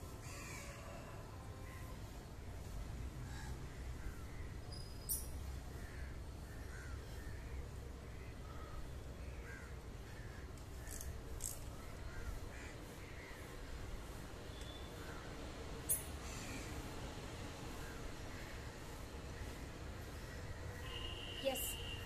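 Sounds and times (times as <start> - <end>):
crows cawing: 0.2 - 1.1, 5.8 - 7.6, 8.2 - 11.0, 11.8 - 13.5, 16.2 - 16.8.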